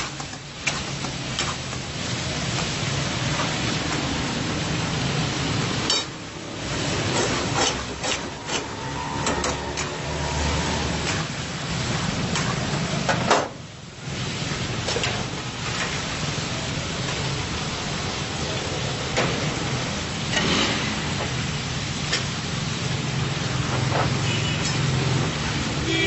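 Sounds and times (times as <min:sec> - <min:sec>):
food sizzling in wok: 0:00.0 - 0:26.0
metal spatula scraping pan: 0:06.9 - 0:11.3.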